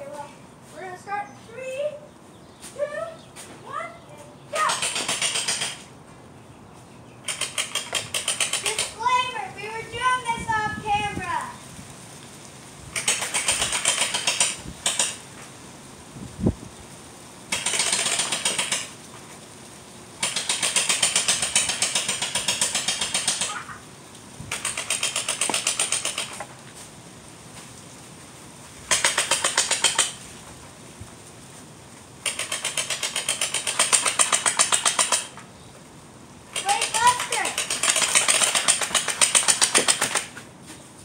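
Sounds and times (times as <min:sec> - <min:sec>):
toy blaster mechanical rattle: 0:07.3 - 0:09.4, 0:13.0 - 0:15.2, 0:17.5 - 0:18.9, 0:20.2 - 0:23.7, 0:24.5 - 0:26.4, 0:32.2 - 0:35.4, 0:36.5 - 0:40.3.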